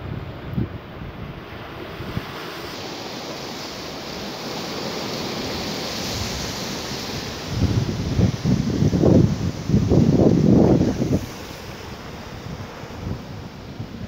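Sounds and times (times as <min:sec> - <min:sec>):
sea surf washing over rocks: 0:00.0 - 0:14.0
wind buffeting microphone: 0:00.0 - 0:14.0.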